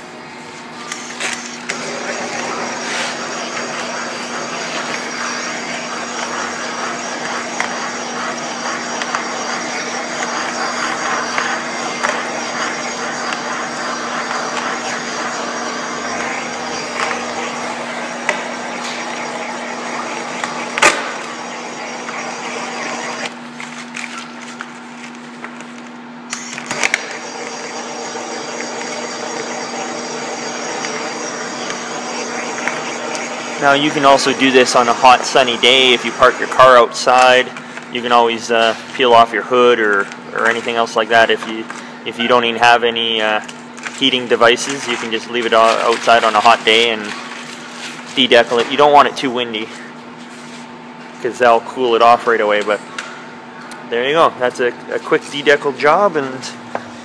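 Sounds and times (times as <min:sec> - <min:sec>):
propane torch hissing: 0:01.6 - 0:23.4, 0:26.3 - 0:37.4.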